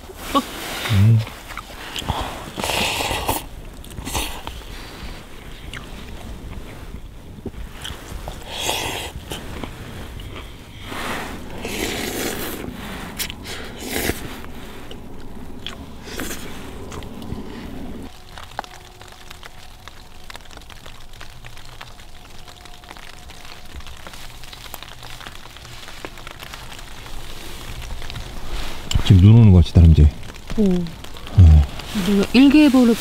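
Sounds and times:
snow pellets pattering on tent: 0.0s - 33.0s
person eating noodles: 11.6s - 15.0s.

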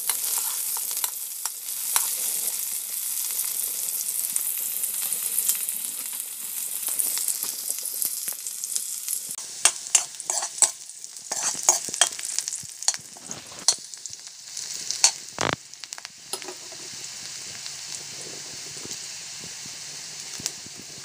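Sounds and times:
onions sizzling in hot oil: 0.0s - 21.0s
metal ladle scraping a pan: 0.1s - 1.1s, 9.6s - 12.2s, 12.9s - 13.8s.

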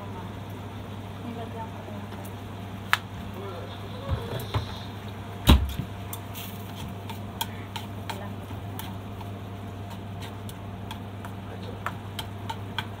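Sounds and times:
steady low hum: 0.0s - 13.0s
chopsticks tapping against a pot: 6.1s - 13.0s.

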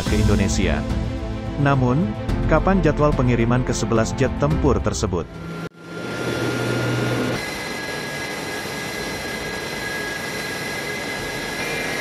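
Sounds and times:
jet engines whining: 5.3s - 12.0s.

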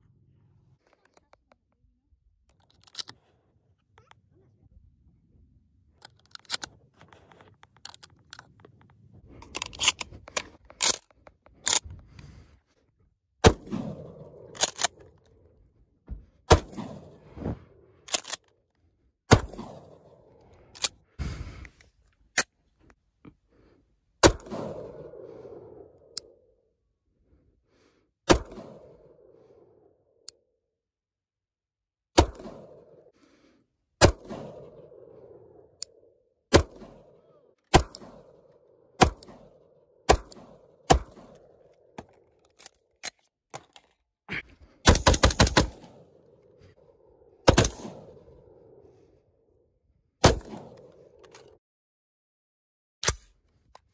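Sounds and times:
gunshot echo: 24.2s - 25.3s.

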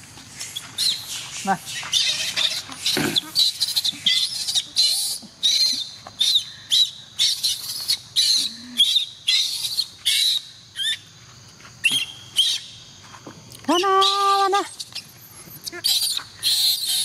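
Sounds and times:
baby monkey shrieking: 0.8s - 11.0s, 14.0s - 17.0s.

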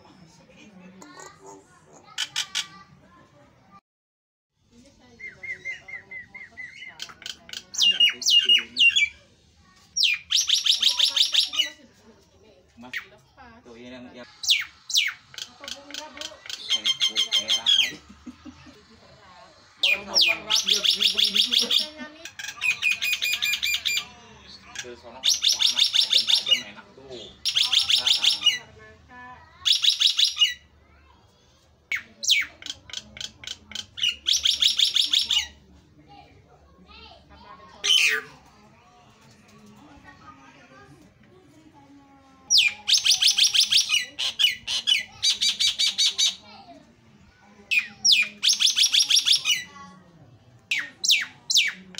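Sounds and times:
myna bird singing: 5.0s - 9.2s, 10.0s - 11.8s, 14.3s - 18.1s, 19.6s - 28.7s, 31.9s - 35.6s, 42.5s - 46.4s, 47.7s - 49.7s, 50.7s - 51.8s.

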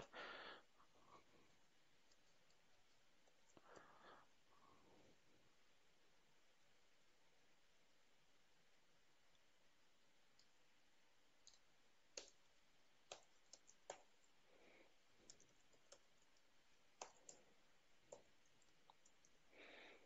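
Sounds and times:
low hiss: 0.0s - 20.0s.

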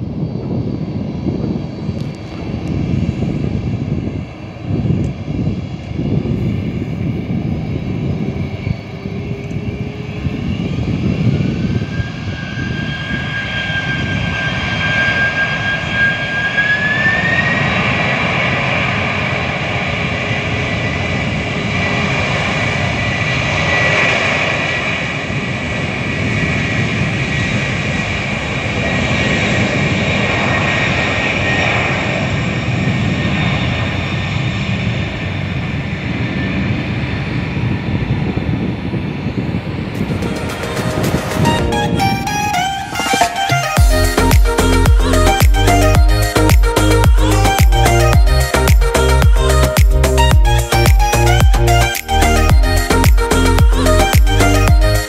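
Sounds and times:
rushing roar of jet rolling: 0.0s - 48.2s
jet engines spooling up: 0.0s - 55.0s.

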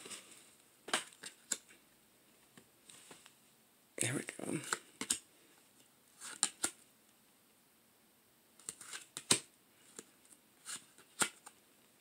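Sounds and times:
cards snapping and sliding: 6.2s - 6.8s, 8.6s - 11.6s.

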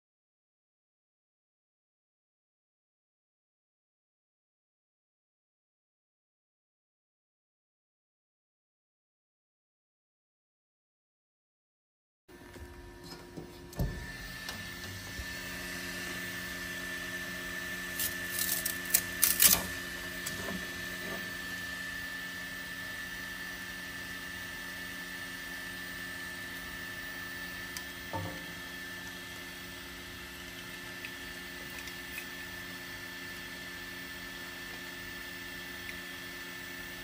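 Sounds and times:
fan humming: 12.3s - 37.0s.

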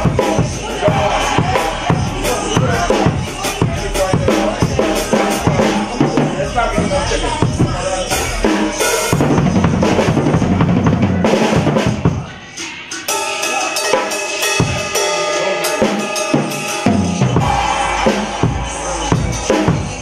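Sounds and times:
rapid drum strokes: 0.0s - 20.0s
cymbal hits: 13.0s - 20.0s.

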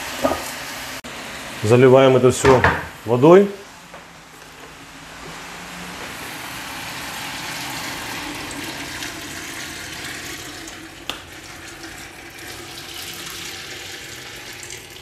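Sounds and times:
water pouring into pot: 6.2s - 15.0s.

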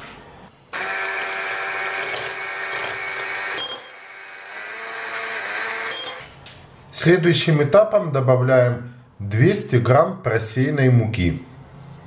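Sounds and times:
electric hand mixer whine: 0.8s - 6.2s.

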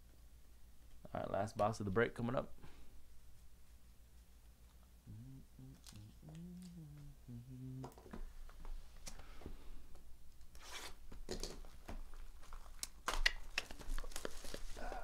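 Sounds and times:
plastic wrap tearing and crinkling: 10.6s - 15.0s.

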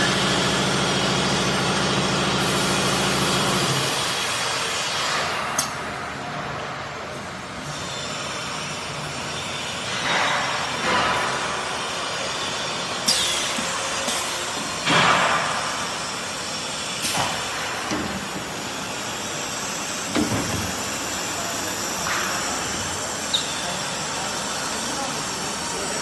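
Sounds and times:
workshop machinery noise: 0.0s - 26.0s
compressed air hisses: 2.4s - 4.9s.

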